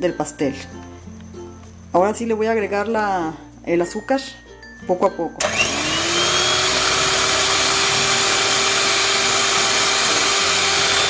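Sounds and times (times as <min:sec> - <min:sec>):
electric hand mixer whirring: 0:05.4 - 0:11.0.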